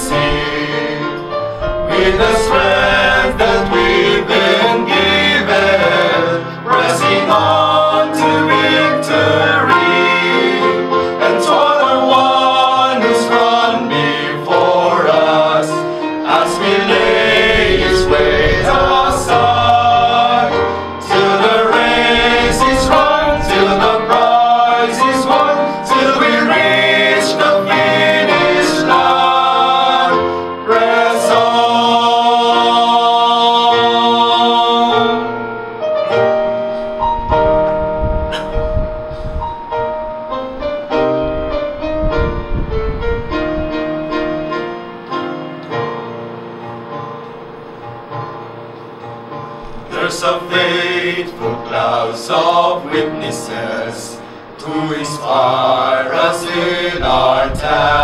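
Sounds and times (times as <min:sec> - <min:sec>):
male vocal quartet singing hymn: 0:00.0 - 0:35.5, 0:49.9 - 0:58.0
piano accompaniment: 0:00.0 - 0:58.0.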